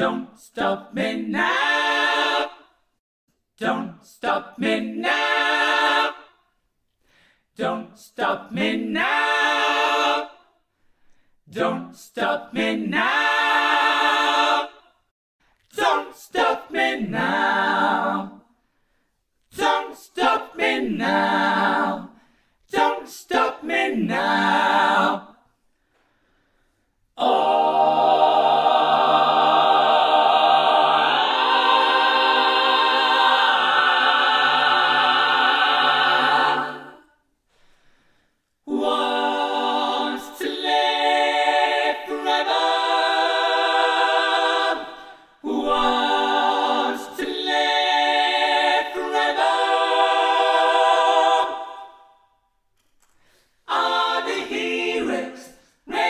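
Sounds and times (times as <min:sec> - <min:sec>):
a cappella vocal harmonies: 0:00.0 - 0:56.0.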